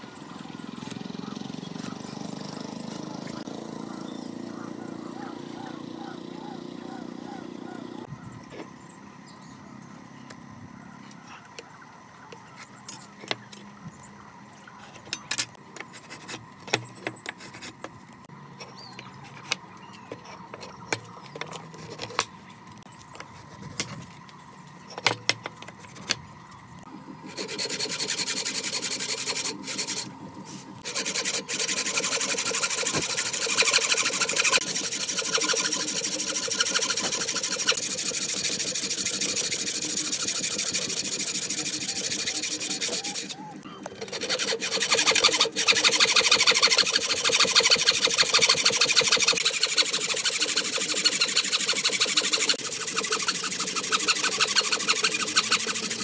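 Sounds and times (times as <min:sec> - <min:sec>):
hand saw cutting wood: 0:15.5 - 0:17.8, 0:27.2 - 0:56.0.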